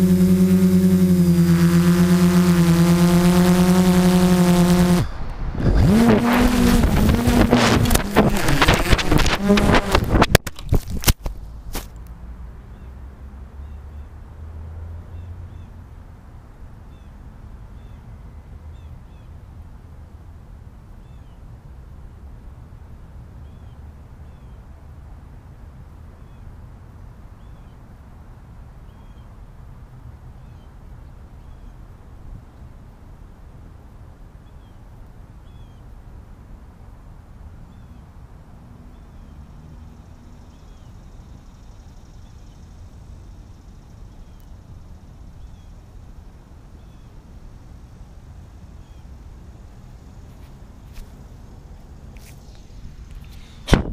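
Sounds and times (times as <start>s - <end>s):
faint high hiss: 0.0s - 10.4s, 15.4s - 53.9s
wind rumble on microphone: 0.0s - 11.8s, 51.7s - 53.9s.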